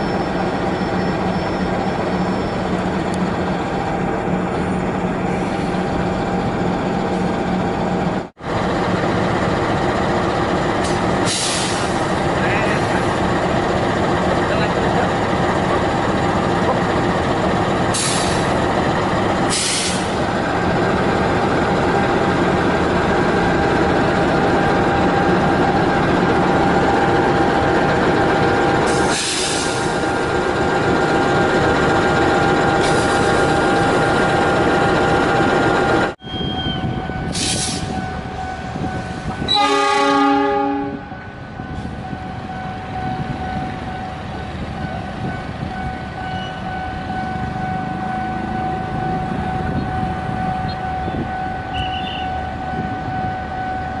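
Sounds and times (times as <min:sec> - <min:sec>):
diesel locomotive engine running: 0:00.0 - 0:54.0
locomotive horn blast: 0:39.4 - 0:41.2, 0:50.6 - 0:53.1.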